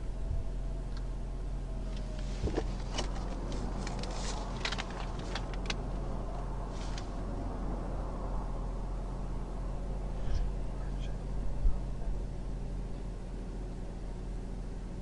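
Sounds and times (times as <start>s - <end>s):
steady low hum: 0.0s - 15.0s
cars passing on highway: 1.9s - 13.6s.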